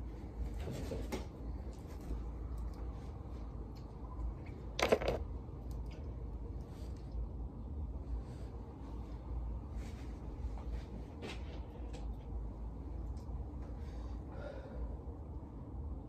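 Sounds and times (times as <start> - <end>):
low room hum: 0.0 - 16.0
makeup items rustling: 4.8 - 5.2.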